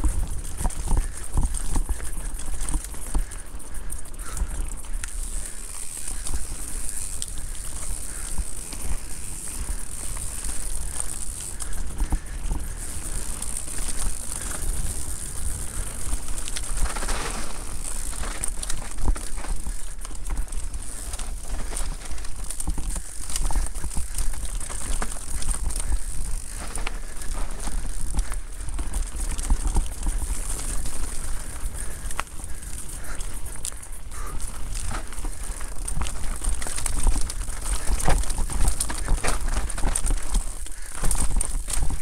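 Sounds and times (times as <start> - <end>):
wind rumble on microphone: 0.0 - 3.2
bike clicks and clatter over rocks: 0.0 - 42.0.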